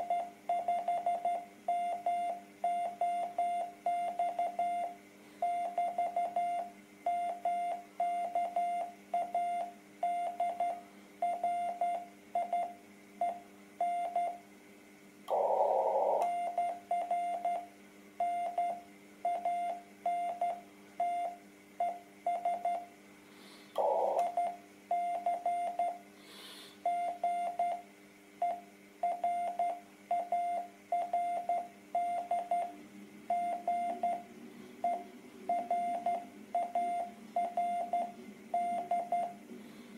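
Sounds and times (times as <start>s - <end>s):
faint steady hum: 0.0s - 39.9s.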